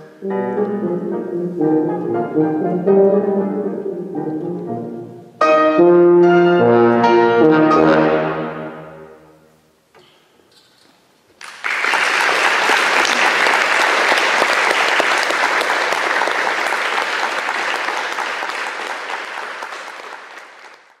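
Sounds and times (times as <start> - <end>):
audience applauding: 11.4 - 21.0.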